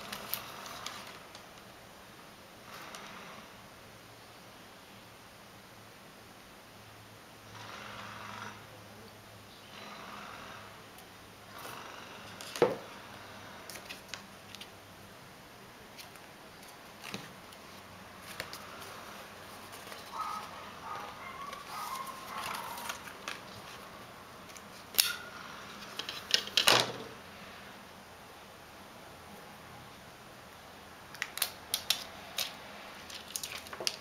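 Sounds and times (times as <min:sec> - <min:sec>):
cardboard packaging clicks and rustles: 0:00.0 - 0:01.7, 0:15.9 - 0:23.9, 0:31.2 - 0:34.0.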